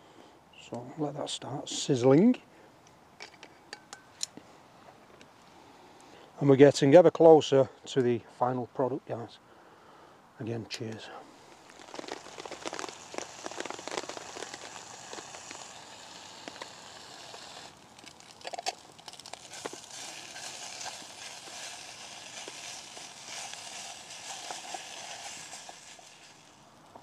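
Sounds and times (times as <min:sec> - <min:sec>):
bacon sizzling in a pot: 0:11.5 - 0:26.8.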